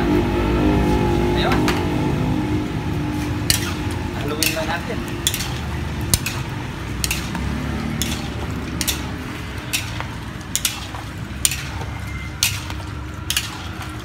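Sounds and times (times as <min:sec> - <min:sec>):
metal utensils scraping a wok: 0:03.1 - 0:14.0.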